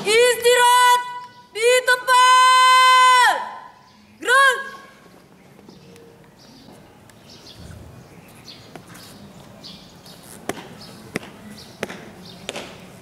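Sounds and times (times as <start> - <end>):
faint outdoor background noise: 0.0 - 13.0
shoe stamps on hard court: 10.4 - 12.8.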